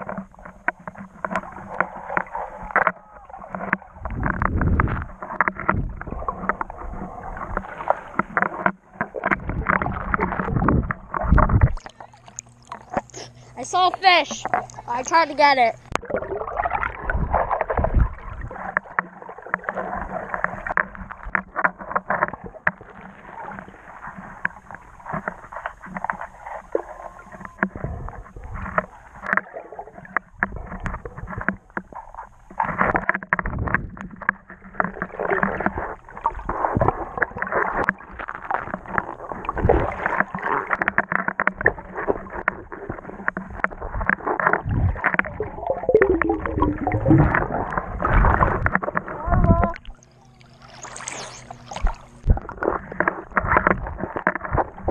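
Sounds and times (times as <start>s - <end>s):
small crackles and knocks: 0.0s - 16.2s, 17.6s - 54.9s
muffled underwater water sloshing: 0.0s - 54.9s.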